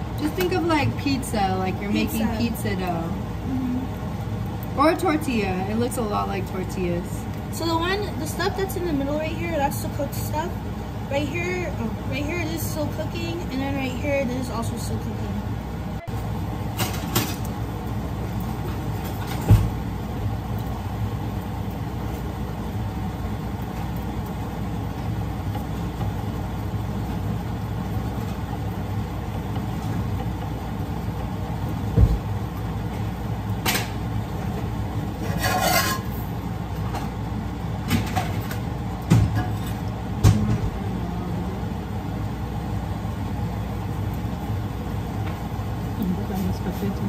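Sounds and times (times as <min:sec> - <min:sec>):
low hum of kitchen noise: 0:00.0 - 0:47.0
spatula scraping pan: 0:35.2 - 0:36.2.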